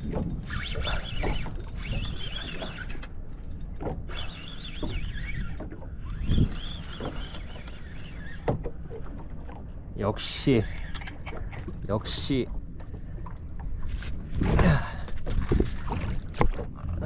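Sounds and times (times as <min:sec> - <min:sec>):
fishing reel whining: 0:00.3 - 0:08.5, 0:10.3 - 0:11.8.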